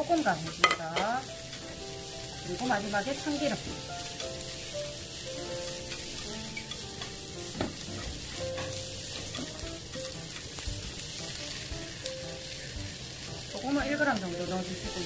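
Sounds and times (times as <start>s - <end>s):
food sizzling in a pan: 0.0s - 15.0s
utensil tapping on pan: 0.4s - 1.8s, 5.7s - 11.4s.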